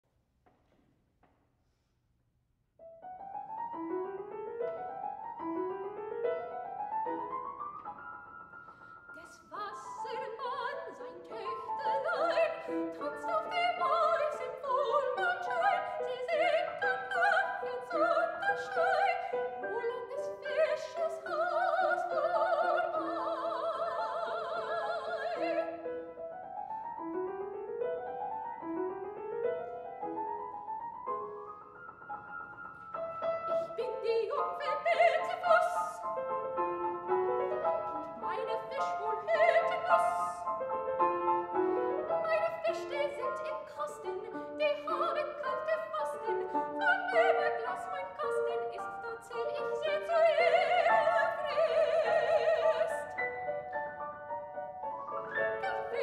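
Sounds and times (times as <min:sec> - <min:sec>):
grand piano accompaniment: 0:02.8 - 0:56.0
soprano singing: 0:09.1 - 0:28.8, 0:33.0 - 0:54.3, 0:54.9 - 0:56.0.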